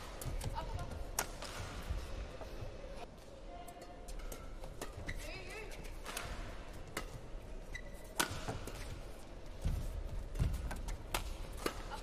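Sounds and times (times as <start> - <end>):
racket striking shuttlecock: 0.0 - 1.9, 5.9 - 7.3, 8.0 - 12.0
court shoes squeaking and thudding: 3.8 - 12.0.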